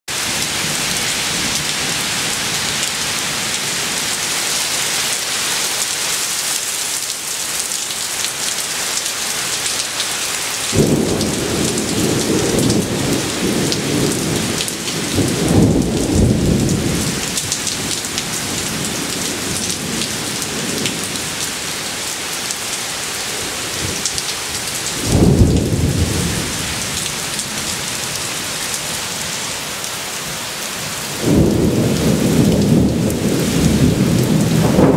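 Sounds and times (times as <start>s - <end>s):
heavy rain pouring: 0.1s - 34.9s
thunder rumbling: 10.7s - 21.6s, 23.7s - 28.7s, 30.8s - 34.9s.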